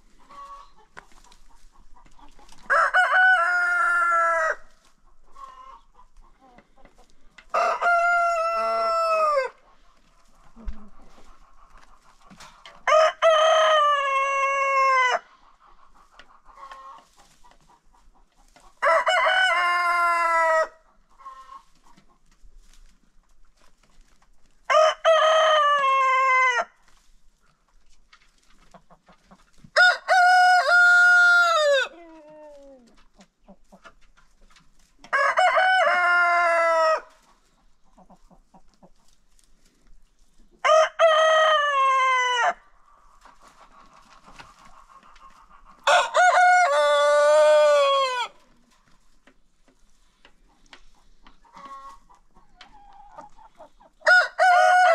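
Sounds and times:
roosters crowing: 2.6 - 4.7, 7.5 - 9.6, 12.8 - 15.3, 18.8 - 21.4, 24.7 - 26.7, 29.7 - 31.9, 35.1 - 37.2, 40.6 - 42.7, 45.8 - 48.4, 54.0 - 54.9.

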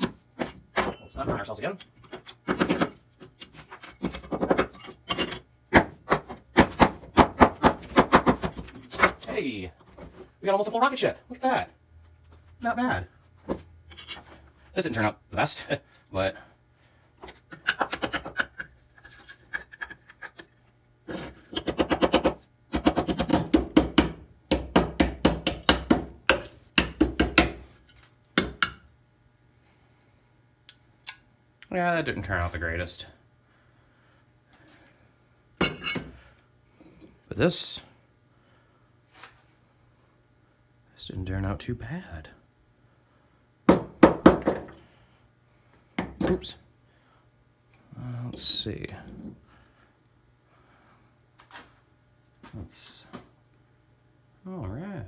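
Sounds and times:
metal tool knocking on plaster: 21.6 - 27.6.

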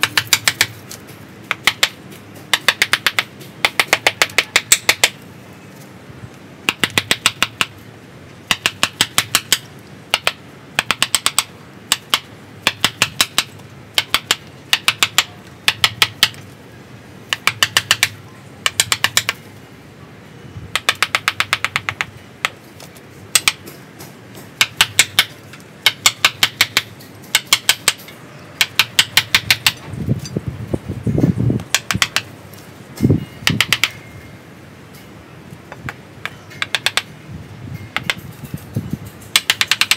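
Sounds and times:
mallet tapping chisel into wood: 0.0 - 0.8, 1.5 - 5.2, 6.7 - 7.7, 8.5 - 16.4, 17.3 - 19.4, 20.7 - 22.6, 23.4 - 23.7, 24.6 - 28.0, 28.6 - 29.8, 31.7 - 32.3, 33.4 - 34.0, 35.7 - 37.1, 37.9 - 38.2, 39.3 - 39.9.

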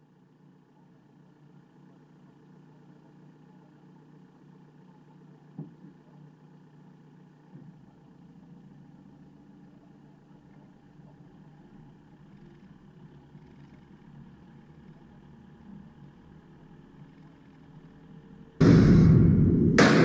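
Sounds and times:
sharp thump: 18.6 - 20.0.

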